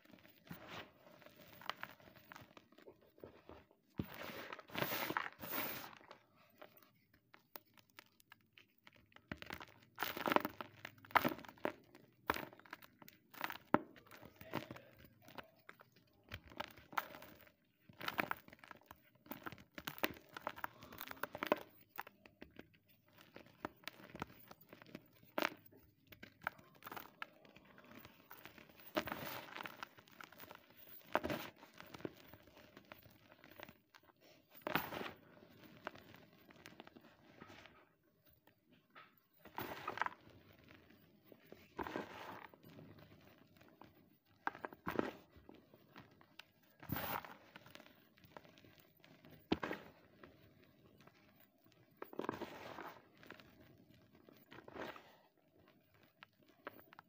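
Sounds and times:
chalk powder crumbling and rustling: 0:00.0 - 0:57.0
chalk crunching: 0:03.3 - 0:07.0, 0:41.4 - 0:45.5.

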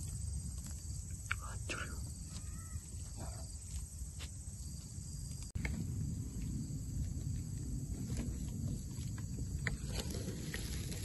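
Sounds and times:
high insect trill: 0:00.0 - 0:11.0
low rumble: 0:05.0 - 0:11.0.

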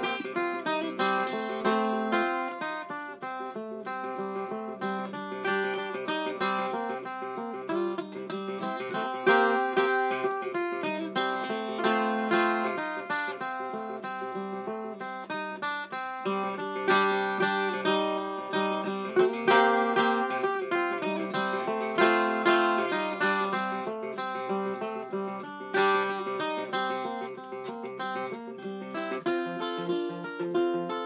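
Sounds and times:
tenor guitar fingerpicked: 0:00.0 - 0:31.0.

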